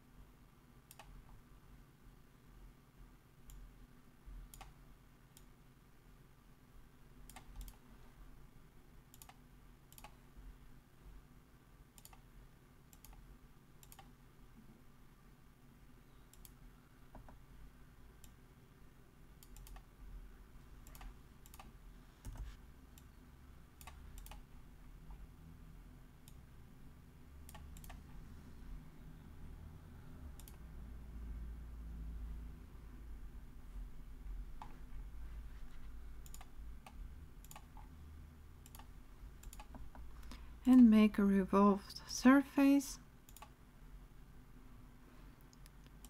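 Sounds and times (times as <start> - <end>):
low room hum: 0.0 - 46.0
computer mouse clicks: 0.9 - 1.4, 3.4 - 3.7, 4.5 - 5.5, 7.2 - 7.8, 9.1 - 10.2, 12.0 - 12.3, 12.9 - 14.1, 16.3 - 17.4, 19.4 - 19.9, 20.8 - 23.2, 23.8 - 24.5, 27.4 - 28.2, 30.3 - 30.6, 36.2 - 37.9, 38.6 - 40.4, 43.3 - 43.6.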